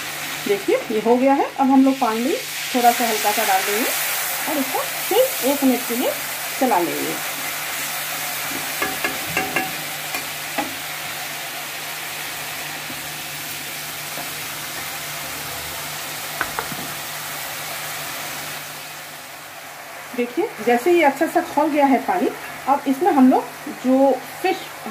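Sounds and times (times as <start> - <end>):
spices sizzling and bubbling in oil: 0.0 - 24.9
spatula knocking on pan: 8.5 - 10.8, 16.4 - 17.0.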